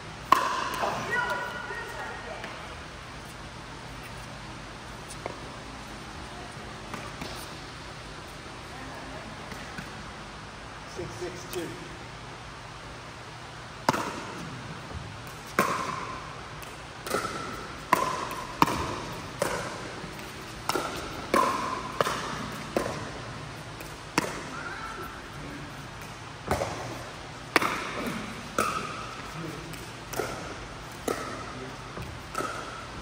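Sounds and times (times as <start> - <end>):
ball bouncing on court: 0.2 - 1.5, 6.8 - 7.6, 13.8 - 25.1, 26.0 - 33.0
paddles hitting plastic ball: 15.3 - 23.2.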